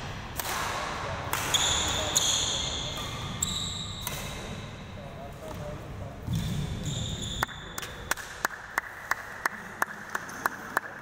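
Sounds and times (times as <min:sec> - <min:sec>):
shoe squeak: 0:01.5 - 0:04.4, 0:06.8 - 0:07.8
person clapping: 0:07.8 - 0:11.0.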